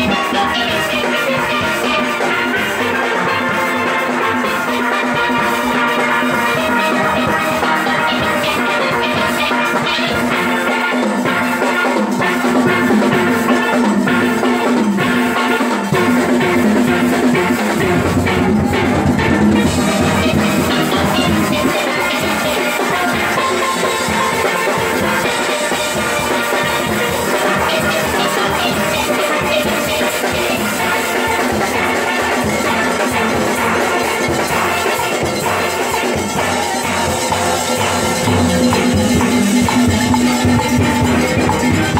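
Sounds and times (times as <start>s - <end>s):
drums keeping the beat: 0.0s - 41.9s
steel pans playing a tune: 0.0s - 41.9s.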